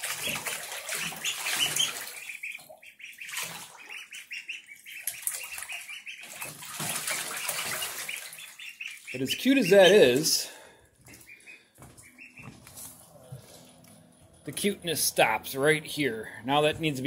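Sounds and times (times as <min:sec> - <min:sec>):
light water splashing: 0:00.0 - 0:11.3
ducklings peeping: 0:00.0 - 0:17.0.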